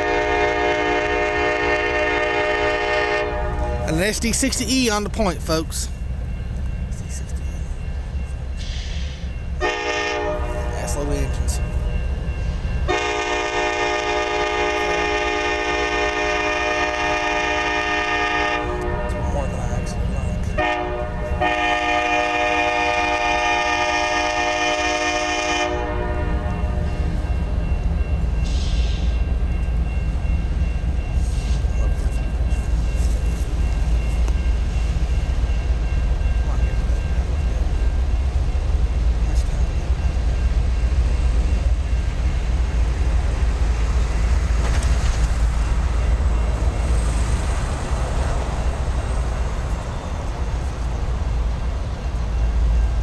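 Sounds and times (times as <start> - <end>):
locomotive air horn chord: 0.0 - 3.9, 9.6 - 10.9, 12.9 - 19.4, 20.6 - 27.1
diesel locomotive engine rumble: 0.0 - 53.0.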